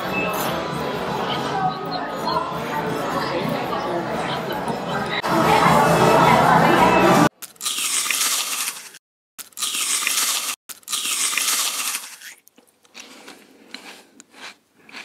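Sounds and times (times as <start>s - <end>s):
paper wrapper crinkling: 7.4s - 13.4s
biting crunchy tortilla: 7.4s - 15.0s
chewing clicks: 7.4s - 15.0s.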